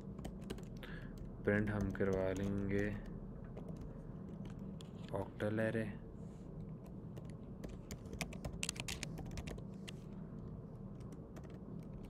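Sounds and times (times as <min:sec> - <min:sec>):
steady low hum: 0:00.0 - 0:12.0
keyboard key clicks: 0:07.9 - 0:09.6.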